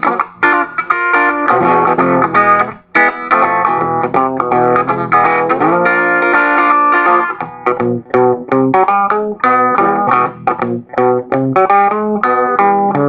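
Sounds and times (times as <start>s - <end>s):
electric guitar boogie-blues: 0.0s - 13.0s.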